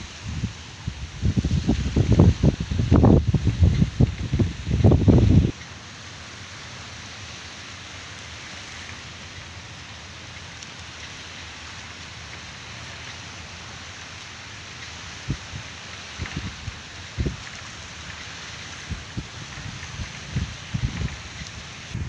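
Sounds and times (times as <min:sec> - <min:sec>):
outdoor background hiss: 0:00.0 - 0:22.0.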